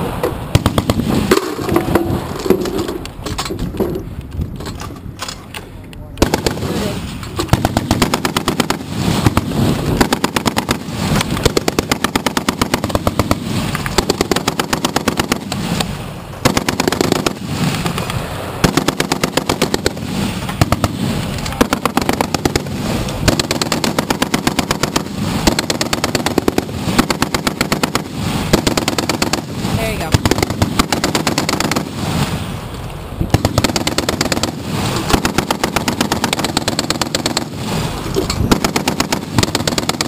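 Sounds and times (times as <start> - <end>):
heavy machine gun bursts: 6.2 - 15.8, 18.6 - 31.9, 33.3 - 40.0.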